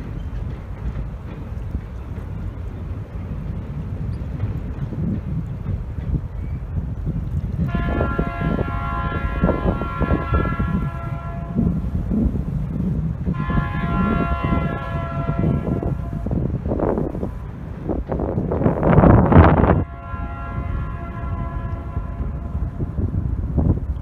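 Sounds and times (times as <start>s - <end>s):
low rumble of passing train: 0.0s - 24.0s
locomotive air horn blasts: 7.6s - 11.8s, 13.3s - 16.5s, 19.5s - 23.0s.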